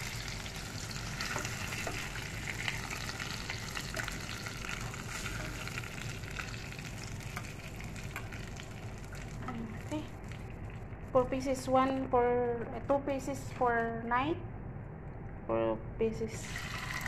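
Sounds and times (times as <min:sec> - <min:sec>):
food sizzling in a hot pan: 0:00.0 - 0:10.6, 0:16.4 - 0:17.0.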